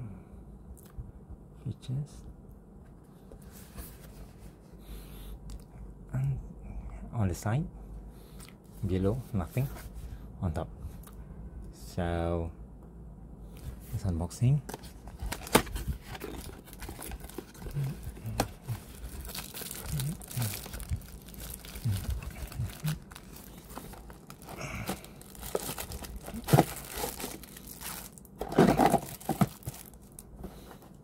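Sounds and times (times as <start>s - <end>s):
plastic crinkling: 15.0s - 30.8s
cardboard box scraping and clicking: 28.4s - 29.6s.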